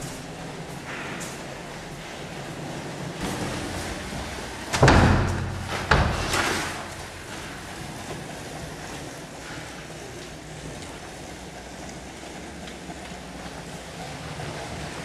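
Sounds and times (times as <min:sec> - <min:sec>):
door thumping: 0:04.7 - 0:06.9.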